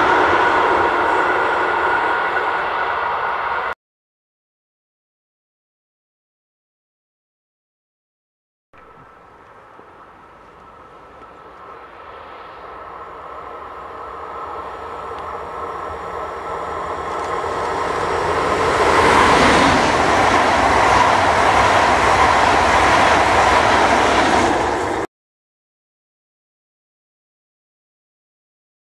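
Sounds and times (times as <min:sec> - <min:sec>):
train passing at speed: 0:00.0 - 0:03.8, 0:08.8 - 0:25.1.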